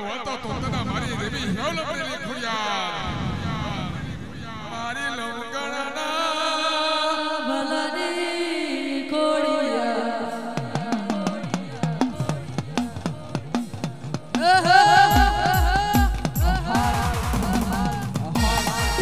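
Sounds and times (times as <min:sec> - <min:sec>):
devotional folk song: 0:03.0 - 0:19.0
percussion beat: 0:10.6 - 0:19.0.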